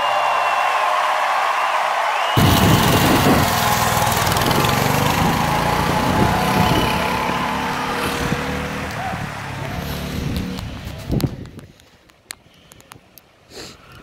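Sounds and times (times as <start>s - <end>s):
go-kart engine revving: 2.4s - 11.0s.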